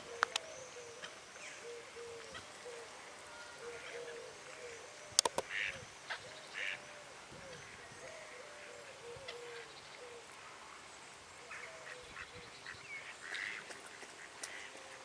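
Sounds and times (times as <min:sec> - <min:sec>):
bird hooting calls: 0:00.0 - 0:10.3
sharp clicks: 0:00.2 - 0:00.5, 0:05.2 - 0:05.5.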